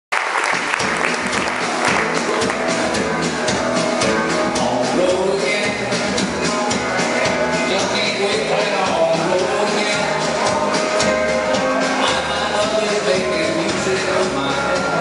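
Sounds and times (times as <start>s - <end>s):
applause: 0.1s - 2.8s
country music with singing: 0.8s - 15.0s.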